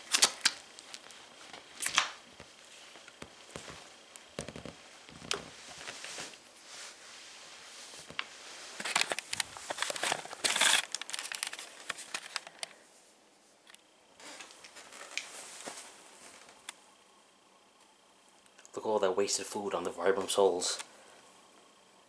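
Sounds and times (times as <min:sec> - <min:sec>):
plastic sheeting crinkling underfoot: 0:00.0 - 0:12.6, 0:14.2 - 0:16.7.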